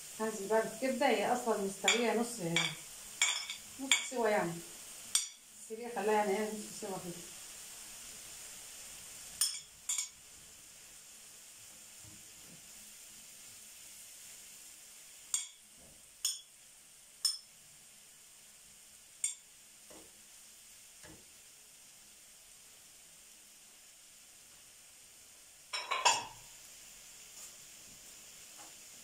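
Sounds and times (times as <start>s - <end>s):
liver sizzling in a frying pan: 0.0s - 29.0s
metal spoon clinking on pan: 1.9s - 4.1s, 5.1s - 5.4s, 9.4s - 10.2s, 15.3s - 15.6s, 16.2s - 16.5s, 17.2s - 17.5s, 19.2s - 19.4s, 25.7s - 26.4s.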